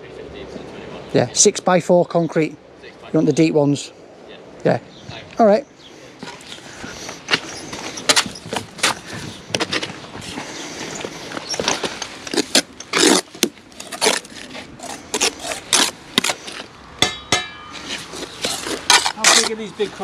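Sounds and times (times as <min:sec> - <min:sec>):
mortar scraping: 0:07.3 - 0:16.7, 0:17.7 - 0:20.0
trowel knocking on concrete blocks: 0:17.0 - 0:17.7.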